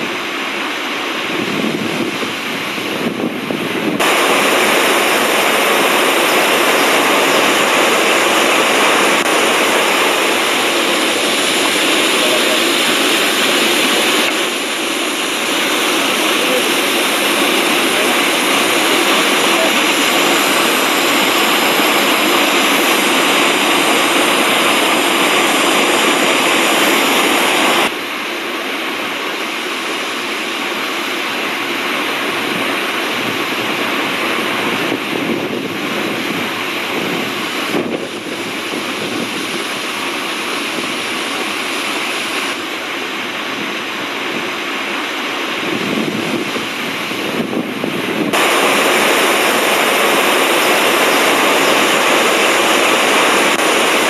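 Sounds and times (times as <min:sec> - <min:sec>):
waterfall roaring: 0:00.0 - 0:54.0.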